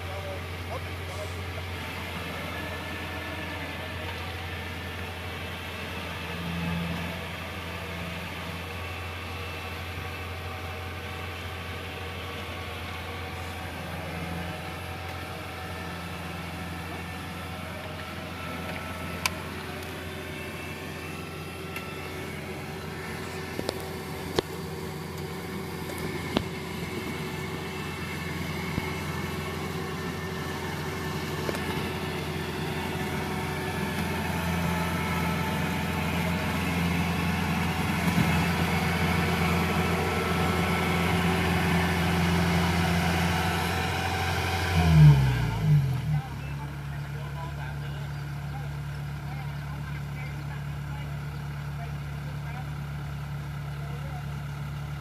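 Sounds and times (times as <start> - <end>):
combine harvester diesel engine: 0.0 - 55.0.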